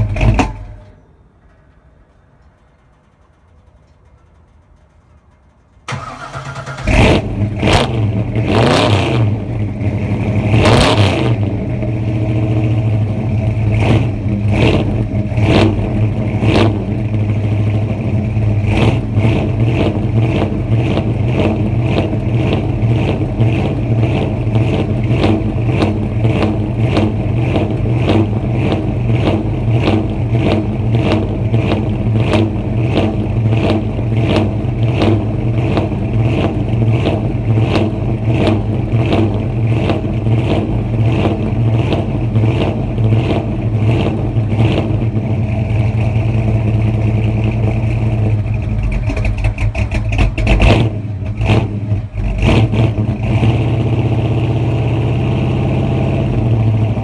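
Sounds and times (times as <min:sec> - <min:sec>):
engine cranking: 0:00.0 - 0:08.8, 0:18.5 - 0:51.5
sharp exhaust cracks: 0:00.0 - 0:54.1
engine revving: 0:05.9 - 0:57.0
loud lumpy engine idle: 0:11.5 - 0:53.3.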